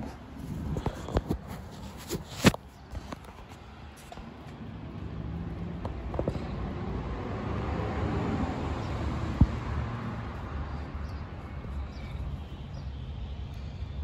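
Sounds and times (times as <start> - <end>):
low traffic rumble: 0.0 - 14.0
vehicle passing: 4.6 - 12.6.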